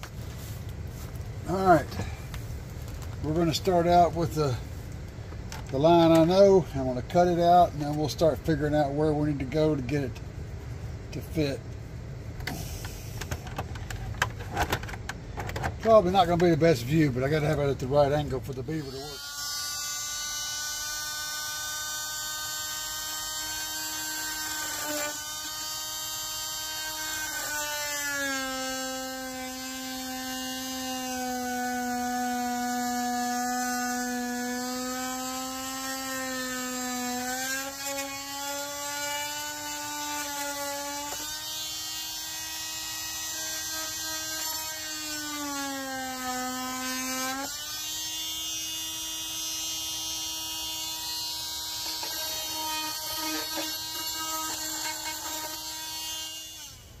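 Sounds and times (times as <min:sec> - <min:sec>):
oscillating multi-tool cutting plastic: 0:18.6 - 0:57.0.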